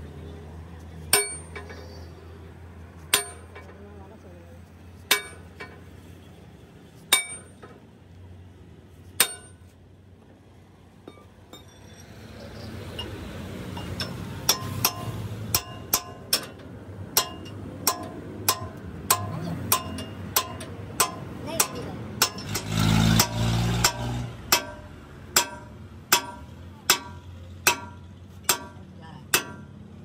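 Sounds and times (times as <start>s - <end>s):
hammer ringing on steel: 1.2s - 1.7s, 3.1s - 3.5s, 5.1s - 5.5s, 7.1s - 7.6s, 9.2s - 9.6s, 13.8s - 16.6s, 17.2s - 29.8s.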